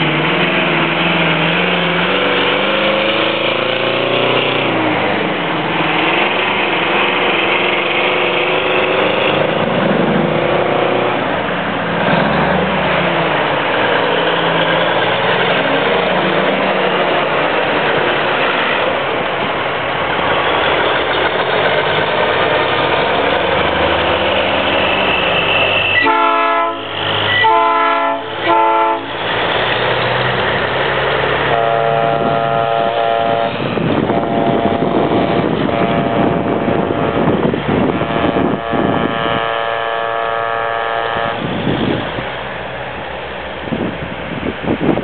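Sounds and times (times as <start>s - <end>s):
diesel truck engines: 0.0s - 45.0s
truck air horn blasts: 25.2s - 29.2s, 31.4s - 37.2s, 37.9s - 41.6s.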